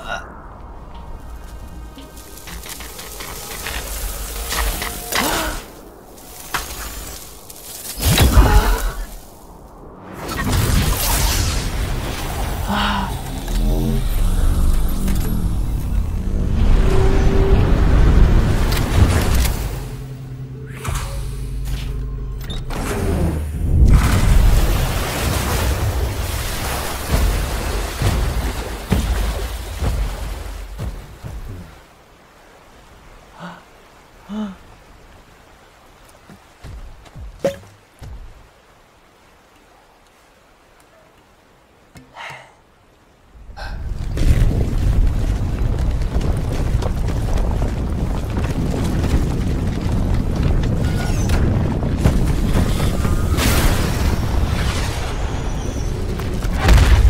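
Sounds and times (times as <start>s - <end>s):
low rumble: 0.0s - 7.6s
film music: 0.0s - 7.7s, 11.9s - 24.0s.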